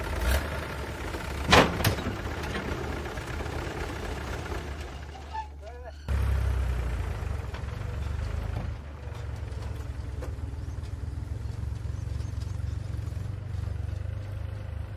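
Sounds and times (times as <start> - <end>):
diesel engines rumbling: 0.0 - 14.9.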